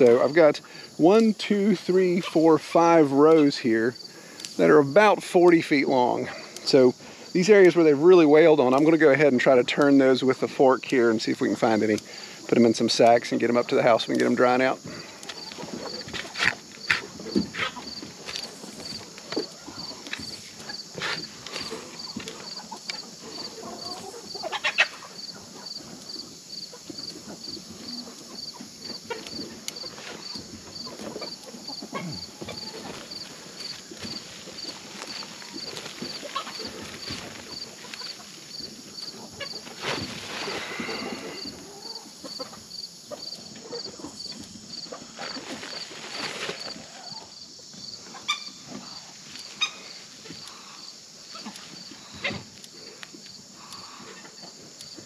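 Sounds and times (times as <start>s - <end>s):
high insect hiss: 0.0s - 55.0s
insects chirping: 0.0s - 55.0s
garden fork digging soil: 15.3s - 23.0s
woven sack rustling: 45.2s - 46.9s.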